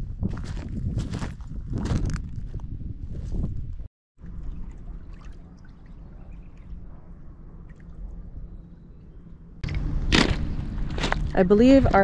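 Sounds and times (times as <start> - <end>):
wind rumble on microphone: 0.0 - 12.0
water lapping and trickling: 4.2 - 11.3.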